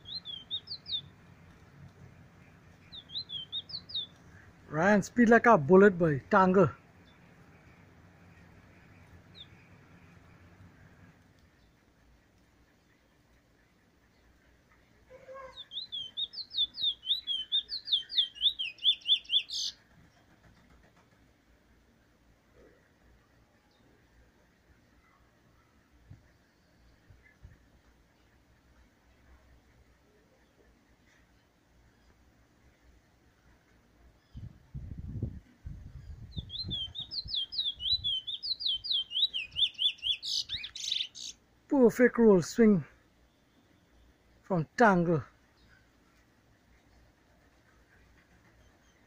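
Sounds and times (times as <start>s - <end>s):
bullfinch singing: 0.0s - 1.2s, 2.8s - 5.7s, 15.3s - 19.8s, 36.0s - 41.4s.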